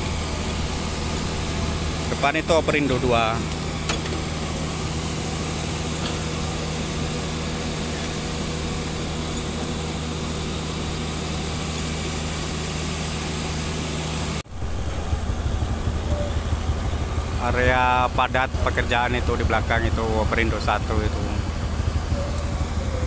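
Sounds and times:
small motorcycle engine idling: 0:00.0 - 0:23.0
rough low rumble: 0:14.5 - 0:23.0.

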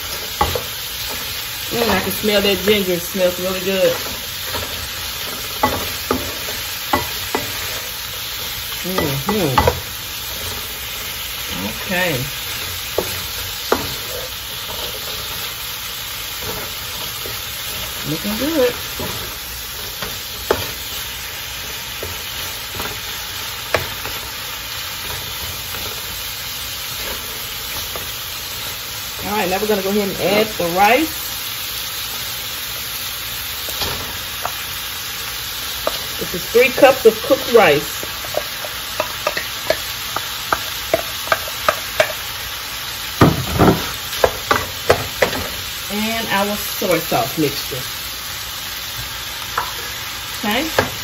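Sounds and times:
food sizzling in a wok: 0:00.0 - 0:51.0
wooden spoon knocking a pan: 0:08.9 - 0:09.9, 0:38.0 - 0:42.2, 0:43.2 - 0:45.5.

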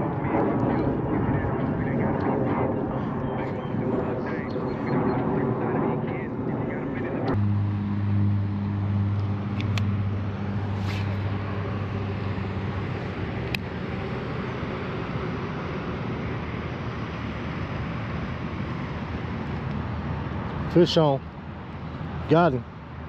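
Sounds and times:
low vehicle engine hum: 0:06.7 - 0:23.0
hiss of passing traffic: 0:07.4 - 0:15.4.

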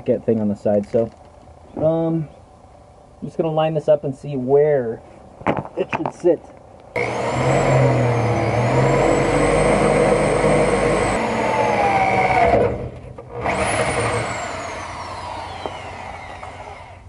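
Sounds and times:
cordless drill boring into steel: 0:07.0 - 0:17.0.

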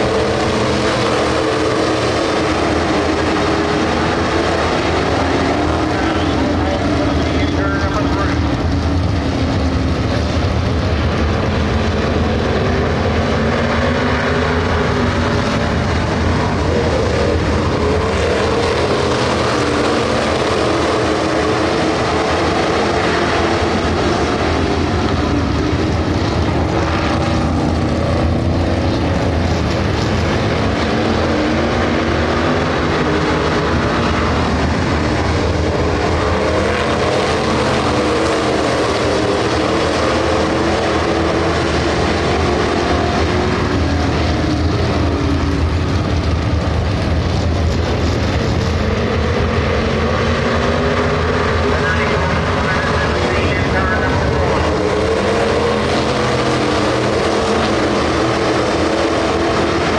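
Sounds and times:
race car engines droning: 0:00.0 - 0:59.9.

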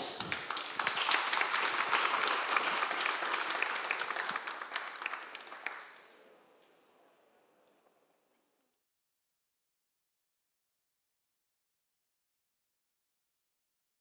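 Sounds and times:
audience applause: 0:00.0 - 0:06.7.

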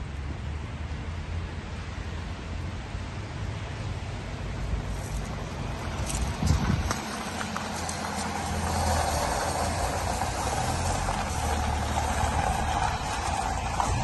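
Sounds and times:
engine humming: 0:01.5 - 0:14.0
tyres crunching on gravel: 0:04.9 - 0:14.0.

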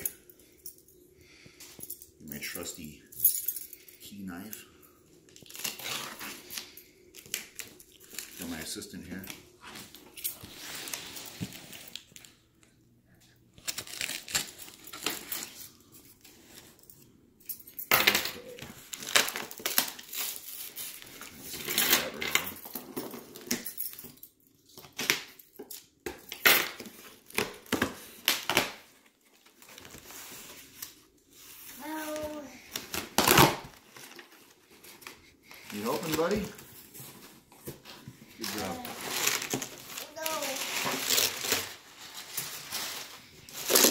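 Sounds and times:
packing tape being slit and torn: 0:32.1 - 0:34.2, 0:39.0 - 0:41.8, 0:43.5 - 0:43.9.

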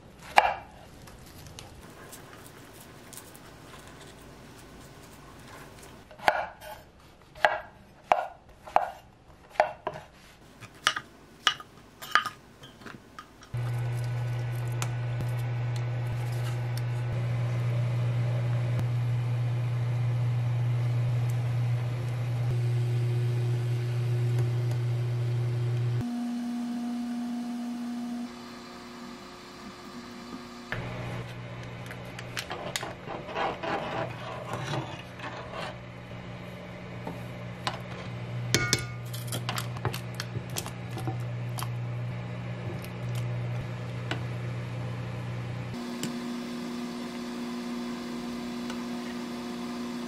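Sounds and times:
cooktop low hum: 0:00.0 - 0:50.0
knife chopping on wooden board: 0:07.4 - 0:10.1
pot boiling: 0:36.2 - 0:50.0.

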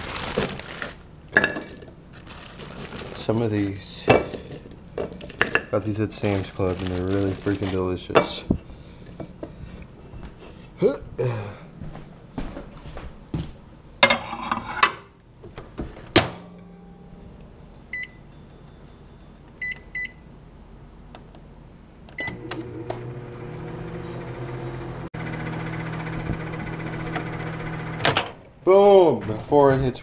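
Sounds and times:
microwave humming: 0:15.3 - 0:18.3, 0:22.0 - 0:29.2
keypad beeps: 0:19.6 - 0:20.2.

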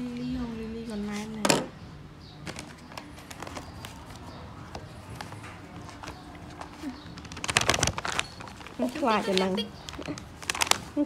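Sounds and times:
handling noises and small clicks: 0:02.4 - 0:10.9
plastic bag crinkling: 0:05.8 - 0:11.0.

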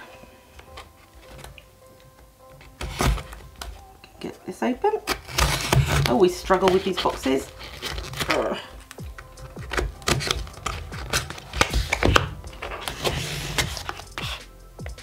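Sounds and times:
cardboard box being opened: 0:05.1 - 0:14.2.

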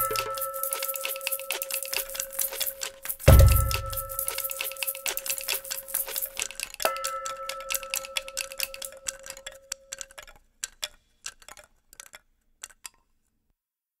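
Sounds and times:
held tone: 0:00.0 - 0:05.9
rapid clicking and ticking: 0:00.0 - 0:13.0.

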